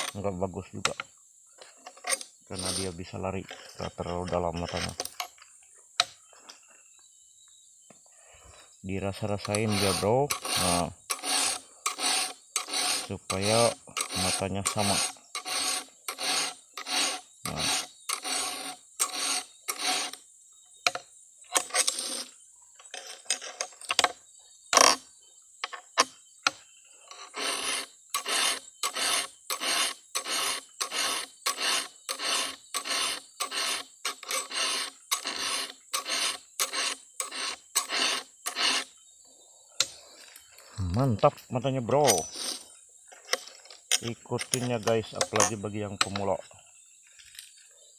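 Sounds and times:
file rasping on chainsaw chain: 0.0s - 0.2s, 1.6s - 5.4s, 9.1s - 20.2s, 21.5s - 24.1s, 26.9s - 38.9s, 41.9s - 46.3s.

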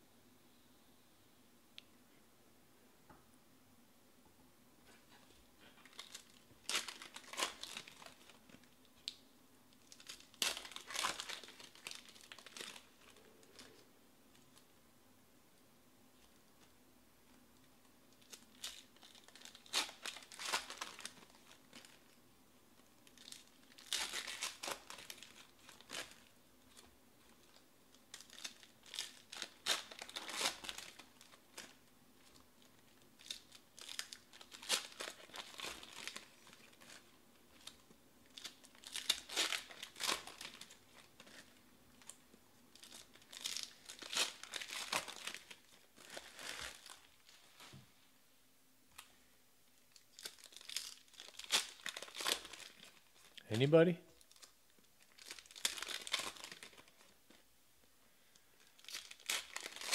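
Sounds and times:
foil wrappers tearing and crinkling: 5.8s - 8.4s, 9.9s - 13.8s, 18.2s - 22.0s, 23.0s - 47.7s, 49.9s - 53.3s, 54.2s - 57.2s, 58.6s - 59.9s.

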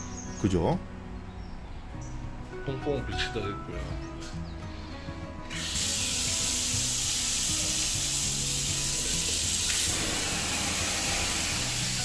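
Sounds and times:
music of sustained low notes: 0.0s - 12.0s
running water rushing: 5.5s - 12.0s.

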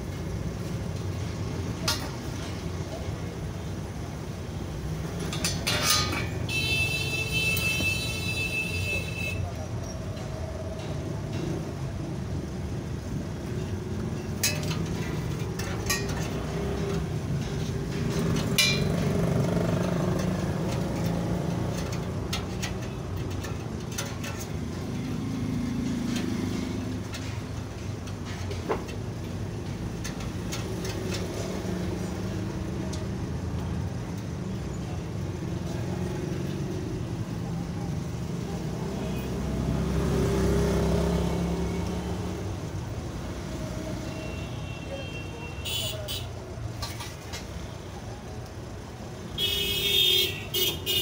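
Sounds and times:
road traffic rumble: 0.0s - 51.0s
metal tubes clicking and clinking: 4.9s - 7.8s, 13.0s - 34.2s.

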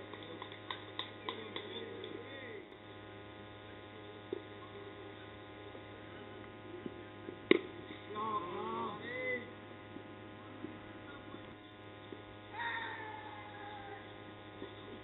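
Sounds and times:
low hum: 0.0s - 15.0s
players shouting calls: 12.5s - 14.2s.

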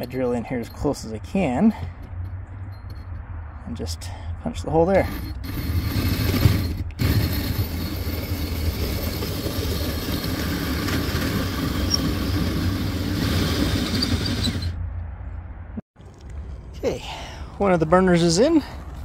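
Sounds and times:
drill with hole saw cutting brick: 5.0s - 14.8s.

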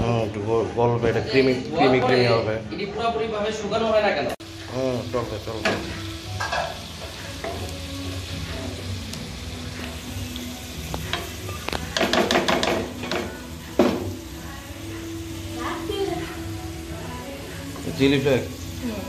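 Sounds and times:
spatula knocking against pan: 11.9s - 14.1s.

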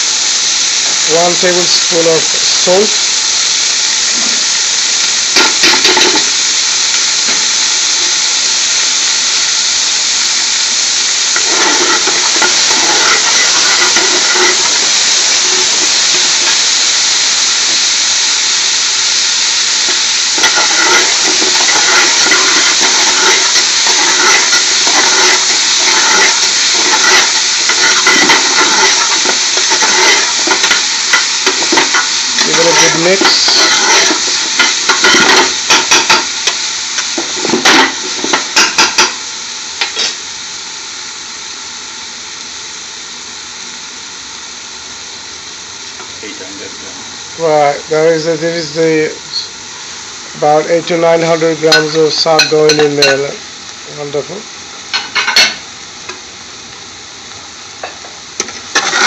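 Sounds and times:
onions sizzling in hot oil: 0.0s - 59.0s
metal spoon scraping pot: 11.4s - 14.8s, 20.4s - 36.3s, 58.8s - 59.0s.

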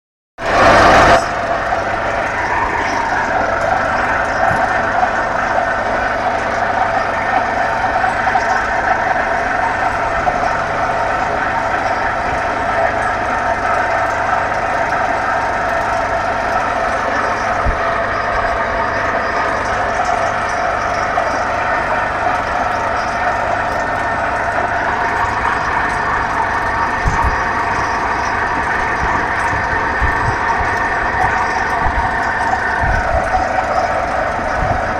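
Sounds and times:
diesel engine drone: 0.4s - 34.9s.

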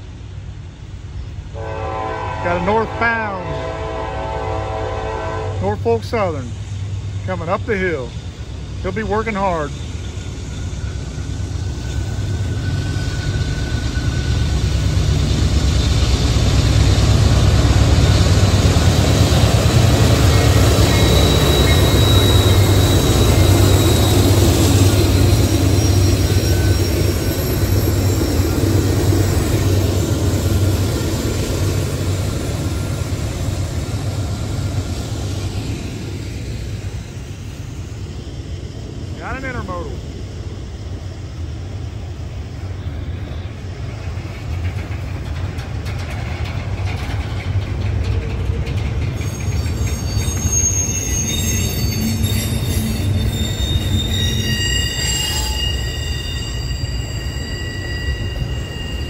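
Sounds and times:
diesel locomotive engines rumbling: 0.0s - 59.0s
high wheel squeals: 9.2s - 15.0s, 20.0s - 32.9s, 49.0s - 59.0s
freight cars rolling by: 42.4s - 59.0s.

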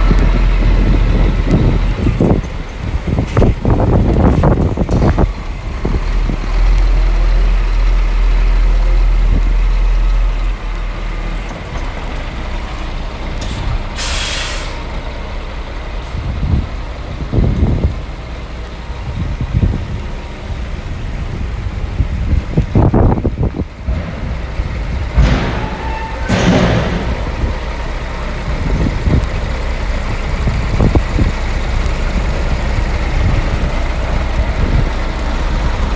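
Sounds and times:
compressed air hiss: 13.4s - 14.9s
low rumble: 19.1s - 35.9s
dull bumps: 23.7s - 28.0s.

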